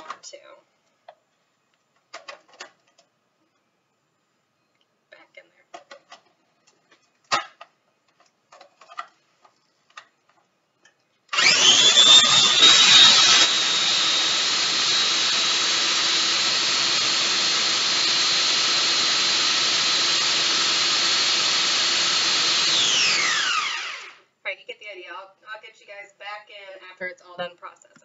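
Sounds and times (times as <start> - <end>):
food processor motor whining: 11.3 - 24.3.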